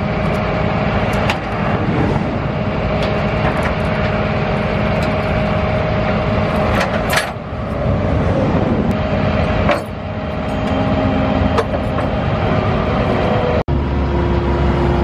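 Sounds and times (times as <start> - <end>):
tow truck engine running: 0.0 - 15.0.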